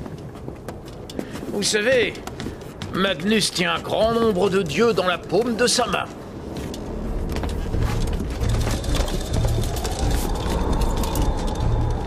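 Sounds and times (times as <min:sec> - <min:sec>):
low storm rumble: 0:06.1 - 0:12.0
faint creaks: 0:06.3 - 0:12.0
thin rising whine: 0:06.3 - 0:12.0.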